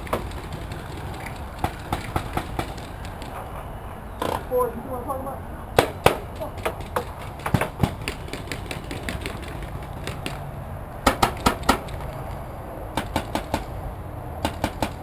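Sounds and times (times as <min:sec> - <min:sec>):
paintball markers firing: 0:00.0 - 0:03.4, 0:05.8 - 0:10.4, 0:11.0 - 0:12.2, 0:14.4 - 0:15.0.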